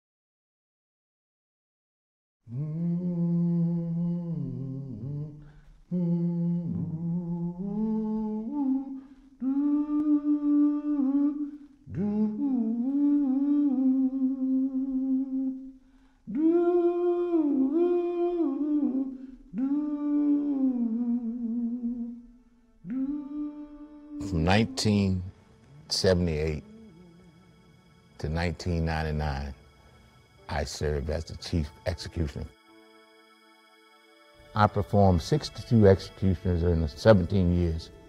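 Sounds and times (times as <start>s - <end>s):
person humming a slow melody: 2.5s - 33.2s.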